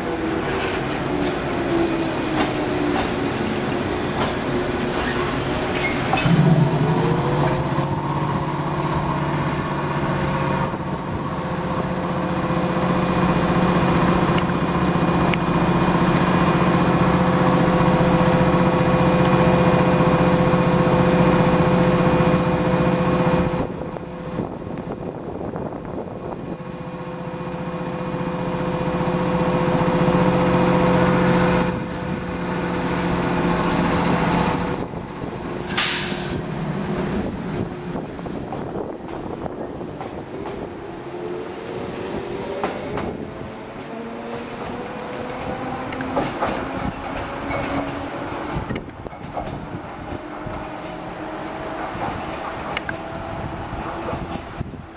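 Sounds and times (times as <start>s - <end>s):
train mechanical hum: 0.0s - 54.9s
short hiss: 35.6s - 36.4s.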